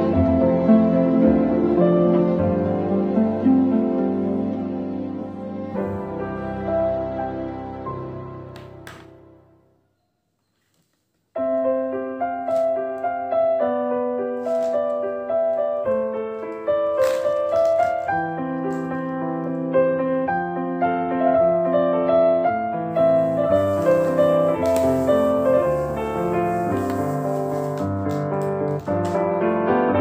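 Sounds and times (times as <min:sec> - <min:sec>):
background piano music: 0:00.0 - 0:10.0, 0:11.4 - 0:30.0.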